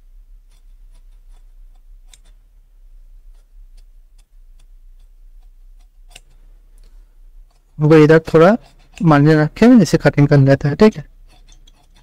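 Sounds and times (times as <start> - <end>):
steady low hum: 0.0 - 12.0
scissors snipping fabric: 0.5 - 2.4, 3.3 - 6.4.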